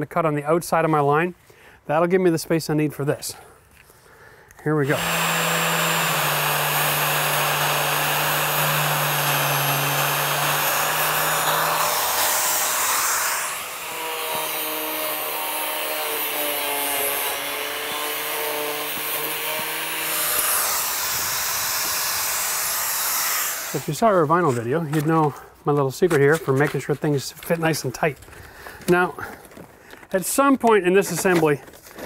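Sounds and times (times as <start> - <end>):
angle grinder cutting siding: 4.7 - 25.4.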